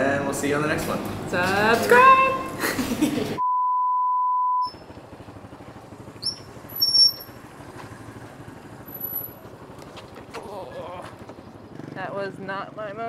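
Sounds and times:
electronic beep: 3.4 - 4.8
motorbike engine at low speed: 4.6 - 13.0
high-pitched squeaks: 6.2 - 7.3.

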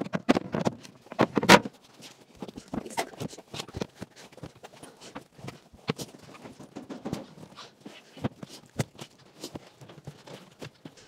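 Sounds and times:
wooden knocks and thumps: 6.0 - 7.6.

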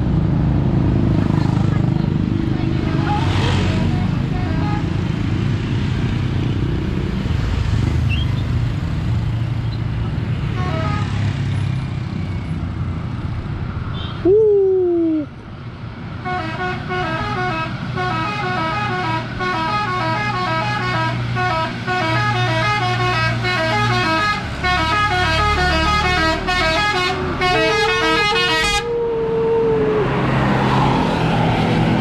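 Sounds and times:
musical bus horn melody: 10.6 - 11.2, 16.2 - 28.9.

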